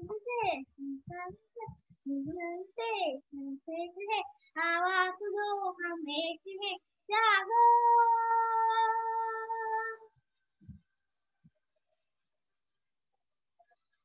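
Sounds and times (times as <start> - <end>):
girl singing unaccompanied: 0.0 - 10.2.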